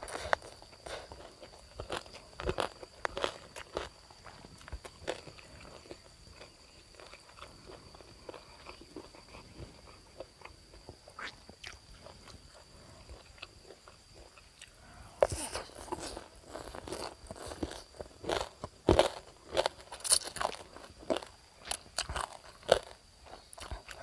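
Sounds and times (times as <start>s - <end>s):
loud crunch of crispy food: 0.0s - 9.4s, 15.2s - 24.0s
soft chewing: 0.0s - 24.0s.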